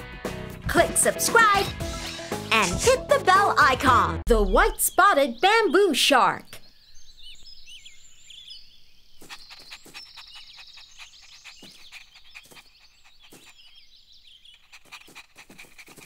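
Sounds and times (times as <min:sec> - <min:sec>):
small birds chirping: 0:04.4 - 0:16.0.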